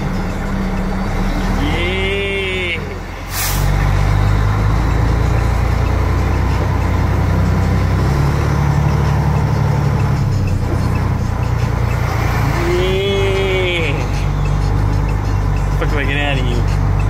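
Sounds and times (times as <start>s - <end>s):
truck diesel engine running: 0.0s - 17.0s
air brake hiss: 3.3s - 3.8s.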